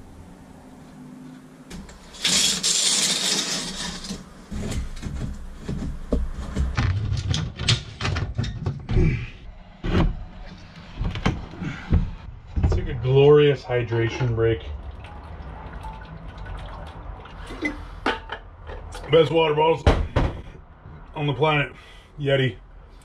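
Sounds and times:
wood scraping: 1.8 - 13.2.

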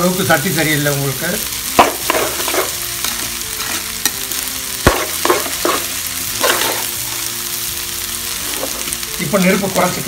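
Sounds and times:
rice sizzling in a pan: 0.0 - 10.0
spatula scraping through rice: 3.5 - 4.0.

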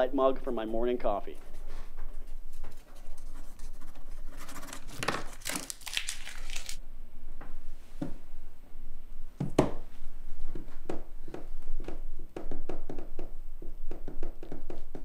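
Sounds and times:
paper tearing and crinkling: 4.4 - 6.8.

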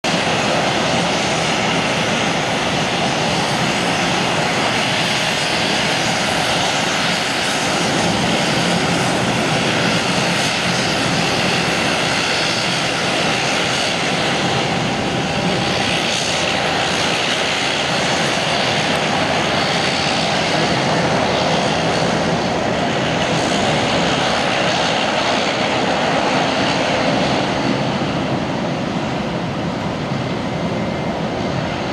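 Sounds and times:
turboprop engines running: 0.0 - 31.9.

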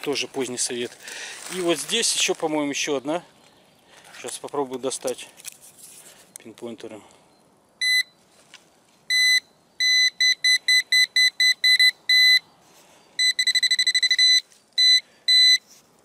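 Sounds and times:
pinpointer probe beeping: 7.8 - 8.2, 9.1 - 12.4, 13.2 - 15.6.

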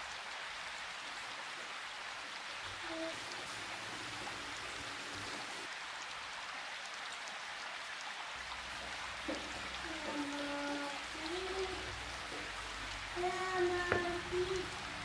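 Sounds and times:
steady rain-like hiss: 0.0 - 15.0
soft knock: 13.8 - 14.2.

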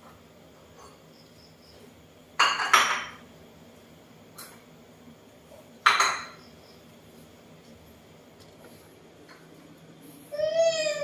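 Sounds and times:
plates clattering on counter: 2.4 - 3.2, 5.8 - 6.4.

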